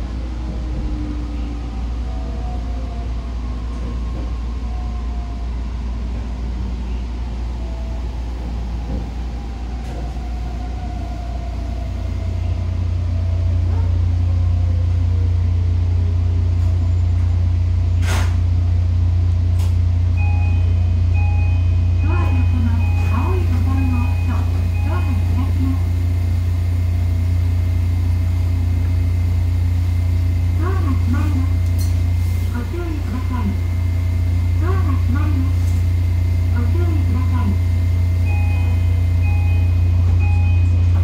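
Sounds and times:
train wheels rumbling on rails: 8.3 - 20.6.

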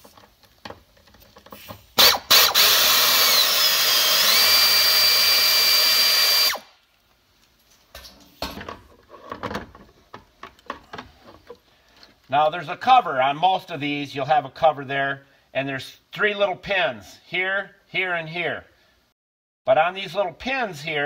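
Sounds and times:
air tool whining: 2.0 - 6.7.

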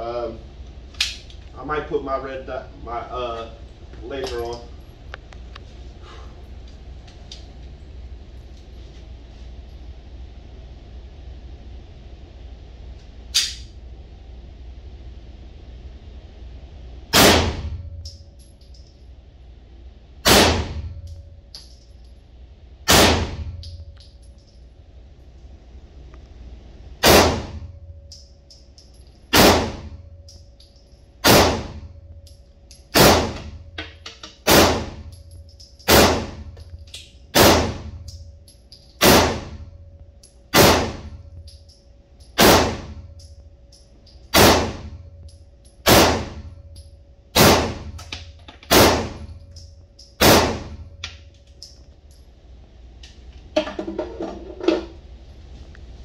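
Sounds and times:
pistol shots echoing indoors: 13.3 - 13.8, 17.1 - 18.3, 20.2 - 21.8, 22.8 - 24.0, 27.0 - 30.4, 31.2 - 39.9, 40.5 - 51.8.

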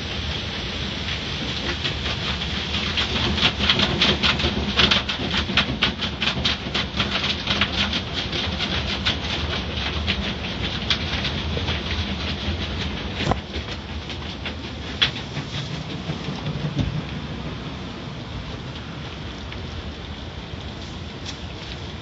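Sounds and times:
wash strips slapping windshield: 1.6 - 17.6.

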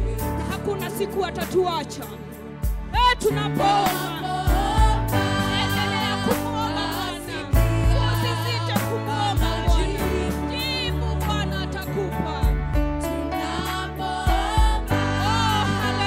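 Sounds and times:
women singing with vibrato: 3.0 - 12.5, 13.2 - 16.0.

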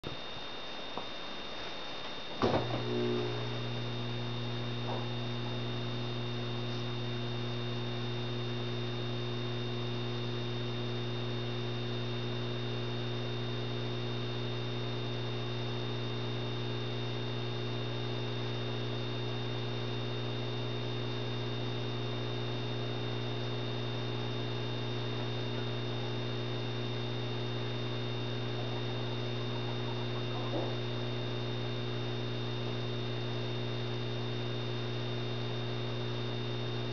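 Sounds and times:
ballast humming: 2.3 - 8.8, 25.0 - 33.1.

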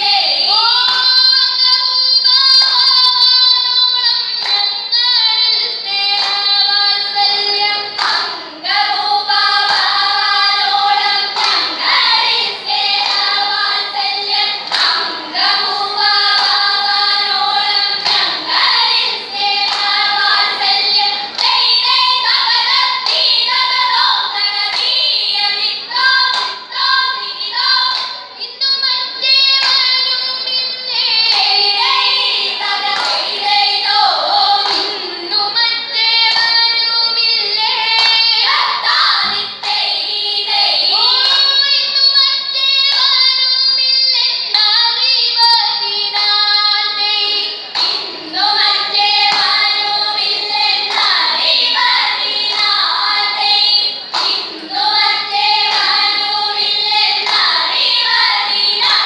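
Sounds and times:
girls singing in chorus: 0.0 - 59.0
hand claps: 0.8 - 1.4, 4.3 - 4.9, 6.1 - 6.7, 7.9 - 8.4, 9.0 - 26.9, 27.8 - 28.3, 29.6 - 30.1, 31.2 - 34.0, 34.6 - 35.1, 36.2 - 36.8, 38.0 - 39.8, 45.4 - 59.0.

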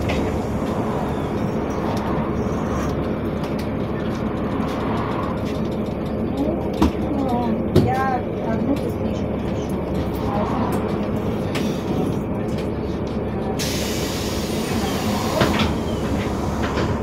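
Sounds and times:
bus engine and road rumble: 0.0 - 17.0
hiss: 13.6 - 15.8.

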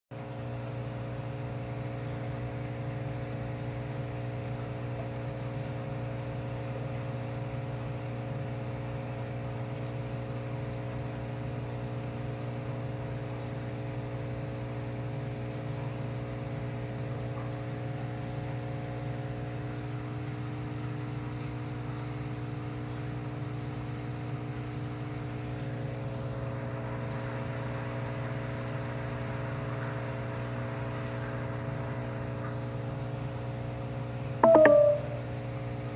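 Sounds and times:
aquarium equipment humming: 0.2 - 35.9.

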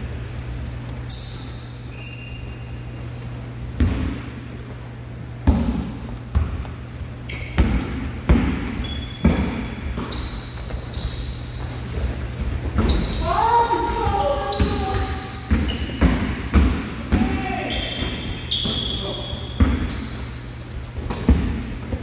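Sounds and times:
steady low hum: 0.0 - 22.0
sneaker squeaks: 0.8 - 4.4, 5.8 - 22.0
basketball bouncing on hardwood floor: 3.8 - 4.2, 5.4 - 6.8, 7.6 - 11.2, 12.4 - 13.2, 13.8 - 20.0, 21.0 - 22.0.

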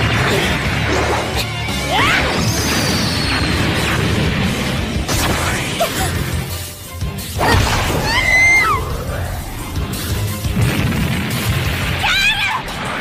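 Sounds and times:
dramatic background music: 0.0 - 13.0.

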